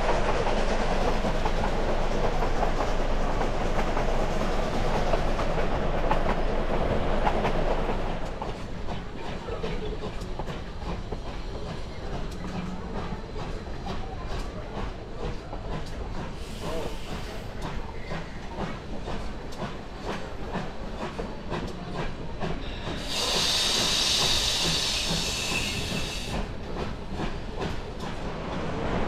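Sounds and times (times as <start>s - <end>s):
low train rumble: 0.0s - 29.0s
train wheels clicking over rail joints: 0.0s - 29.0s
loud steam hiss: 16.3s - 17.6s, 22.6s - 26.6s.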